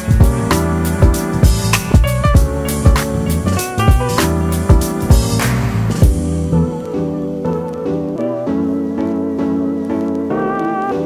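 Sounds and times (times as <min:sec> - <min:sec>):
pop music: 0:00.0 - 0:11.0
kick drum: 0:00.1 - 0:00.4, 0:01.4 - 0:03.0, 0:03.9 - 0:05.4, 0:06.0 - 0:06.2.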